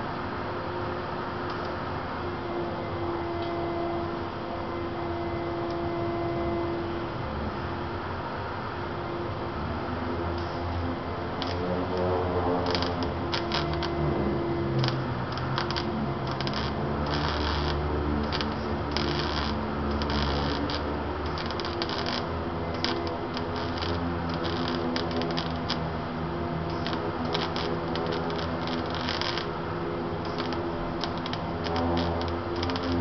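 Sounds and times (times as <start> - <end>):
low steady hum: 0.0 - 33.0
welding arc crackling: 10.3 - 33.0.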